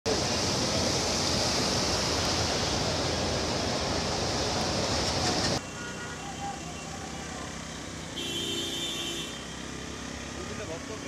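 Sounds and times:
water rushing: 0:00.1 - 0:05.6.

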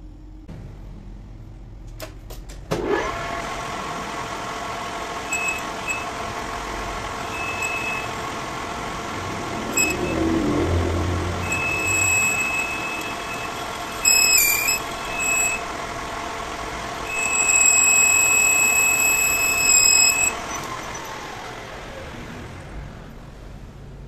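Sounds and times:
metal lathe running: 0:03.0 - 0:22.0
cutting tool squealing: 0:05.2 - 0:16.2, 0:17.0 - 0:21.5
clicks: 0:11.5 - 0:15.6.

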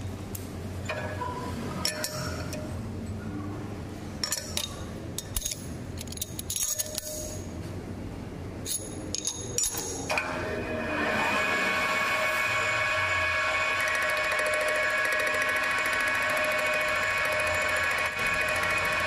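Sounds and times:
lathe spindle humming: 0:10.2 - 0:19.0.

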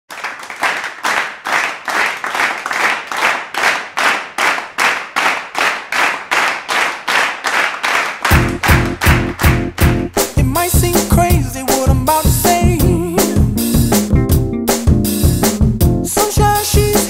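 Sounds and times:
hand clapping: 0:00.1 - 0:10.4
music with pounding bass: 0:08.3 - 0:17.0.

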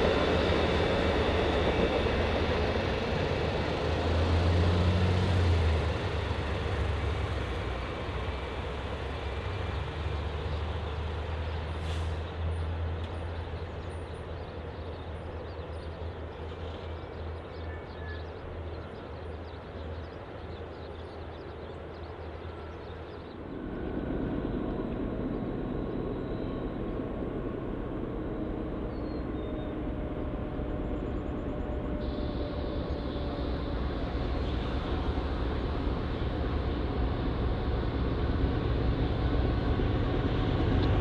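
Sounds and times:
freight train rumble and drone: 0:00.0 - 0:41.0
passenger train rumbling: 0:00.0 - 0:41.0.

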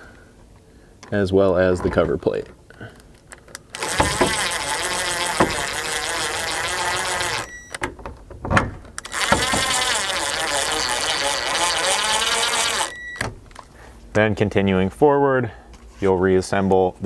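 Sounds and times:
sharp clicks: 0:03.4 - 0:07.8
cordless drill buzzing: 0:03.6 - 0:07.8, 0:09.0 - 0:13.3.

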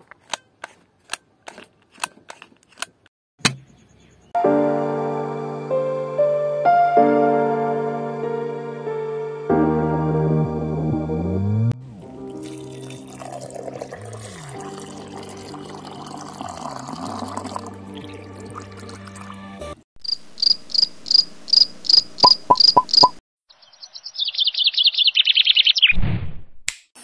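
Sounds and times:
soft background music: 0:04.4 - 0:19.8
water pouring: 0:12.0 - 0:19.4
short high chirps: 0:22.2 - 0:23.2.

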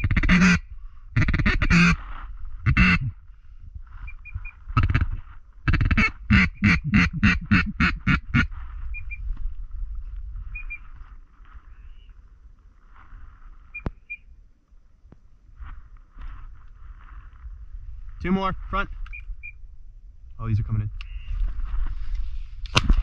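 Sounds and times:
duck quacking loudly: 0:00.0 - 0:00.6, 0:01.2 - 0:02.0, 0:02.7 - 0:03.1, 0:04.8 - 0:08.5
faint duck calling: 0:00.0 - 0:02.0, 0:02.6 - 0:03.2, 0:04.1 - 0:09.2, 0:21.0 - 0:21.4
small high peeps: 0:10.5 - 0:10.9.

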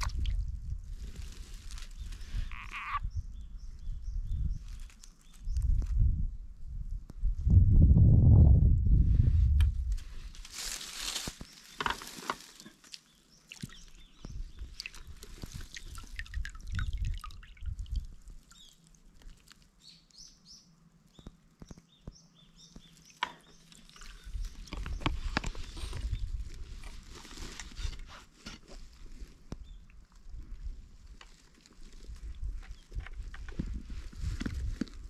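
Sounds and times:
water dripping and splashing: 0:00.0 - 0:00.5, 0:12.4 - 0:19.8.

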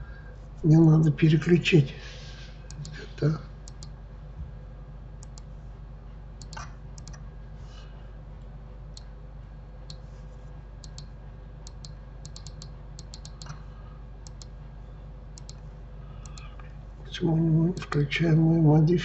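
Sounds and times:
steady low hum: 0:00.0 - 0:19.0
mouse and keyboard clicks: 0:02.7 - 0:03.0, 0:06.4 - 0:07.2, 0:10.8 - 0:11.1, 0:11.7 - 0:13.6, 0:14.2 - 0:14.5, 0:16.2 - 0:16.5.

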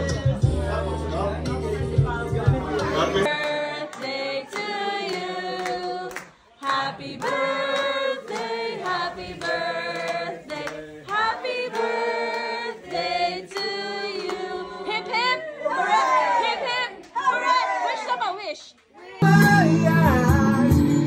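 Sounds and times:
group singing held notes: 0:02.8 - 0:16.9.

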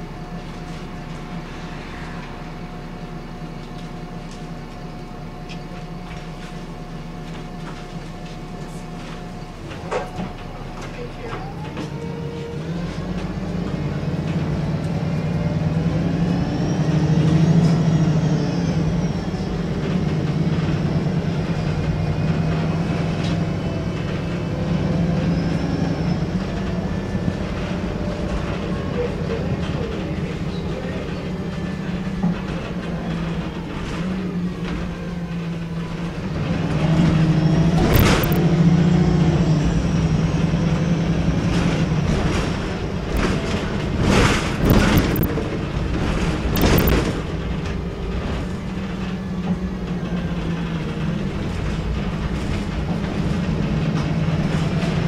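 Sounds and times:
bus diesel engine running: 0:00.0 - 0:55.0.

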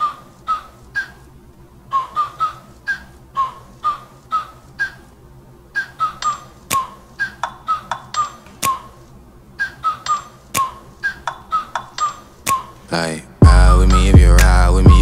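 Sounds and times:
hip-hop backing track: 0:12.5 - 0:15.0.

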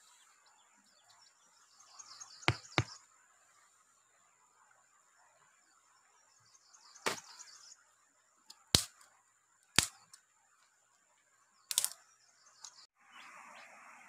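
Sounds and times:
dry wooden sticks snapping: 0:08.8 - 0:09.1, 0:09.7 - 0:10.2, 0:11.7 - 0:12.0.

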